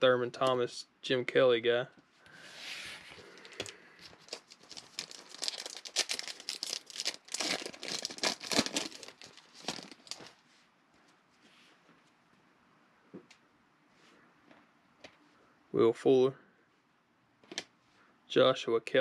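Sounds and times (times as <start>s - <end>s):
foil wrapper crinkling and tearing: 3.4s - 10.3s.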